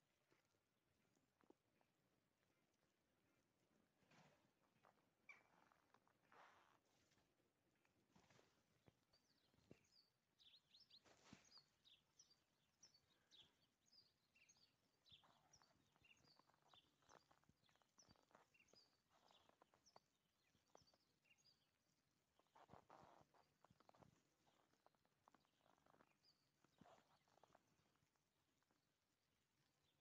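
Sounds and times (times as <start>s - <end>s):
footsteps in snow: 0.2s - 9.9s, 10.9s - 12.7s, 15.1s - 21.0s, 22.4s - 28.8s
small birds chirping: 8.2s - 30.0s.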